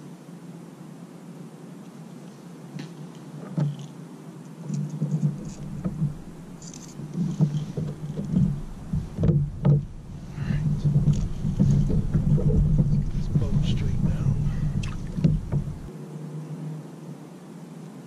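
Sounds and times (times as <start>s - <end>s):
fishing tackle knocks and clicks: 4.7s - 15.9s
wind buffeting microphone: 5.0s - 15.9s.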